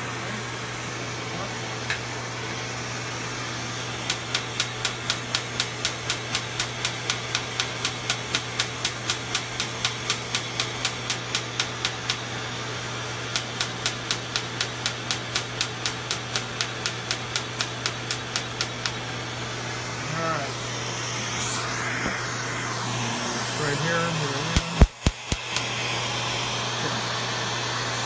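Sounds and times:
smoke evacuator hiss and hum: 0.0 - 28.0
laser firing sharp snaps: 4.0 - 12.3, 13.3 - 19.0, 24.5 - 25.7.

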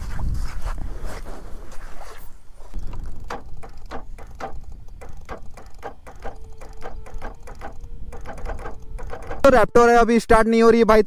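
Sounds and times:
irregular mechanical clicks: 2.8 - 9.8.

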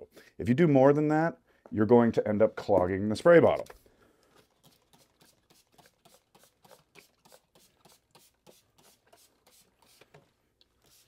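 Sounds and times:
spray bottle spritzes: 4.4 - 10.2, 10.8 - 11.0.

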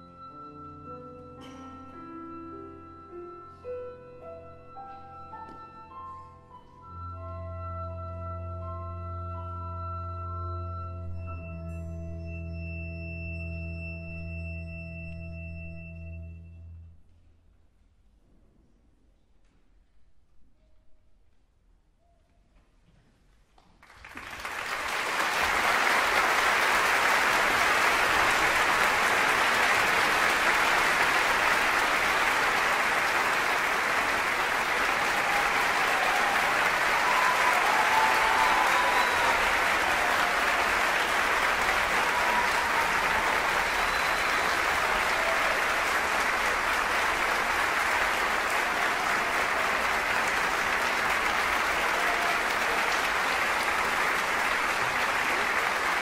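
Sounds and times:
large audience applauding: 23.8 - 56.0.

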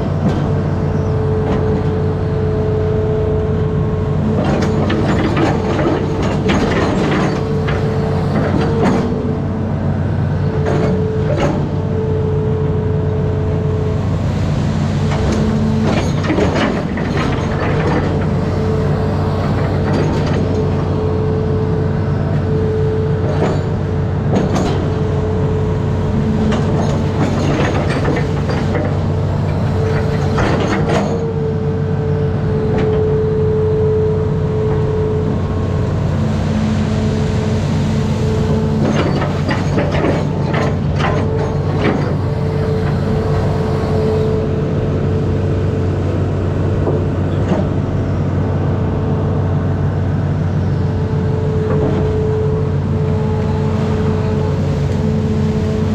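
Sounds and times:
diesel engine running: 0.0 - 55.9
hydraulic whine: 0.0 - 55.9.

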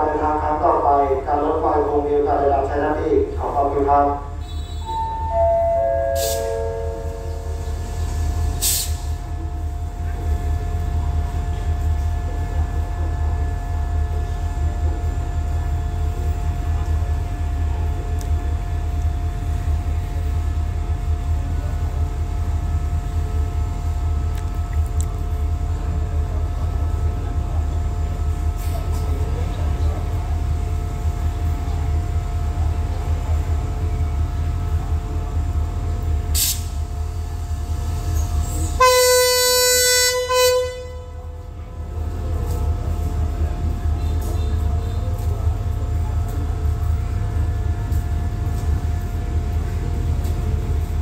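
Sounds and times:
diesel locomotive rumbling: 0.0 - 51.0
train horn blast: 4.4 - 5.4, 6.2 - 7.4, 38.8 - 41.4
short hiss: 8.6 - 9.2, 36.4 - 36.8.

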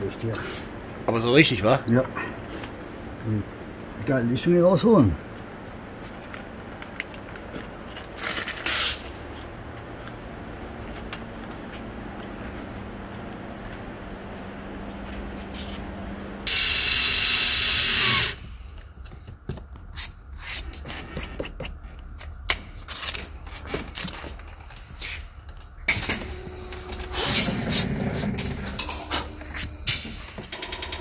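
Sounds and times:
power drill whirring: 16.5 - 18.5.

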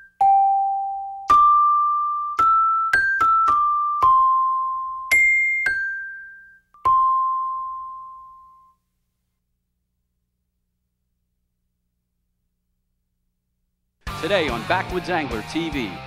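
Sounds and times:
bell-like keyboard melody: 0.0 - 8.8.

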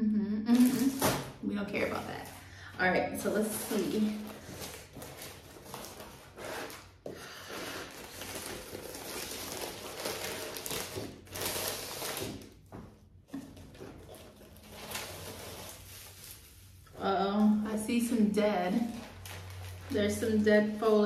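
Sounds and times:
packing paper rustling: 0.5 - 2.6, 3.2 - 17.8, 18.6 - 21.0.

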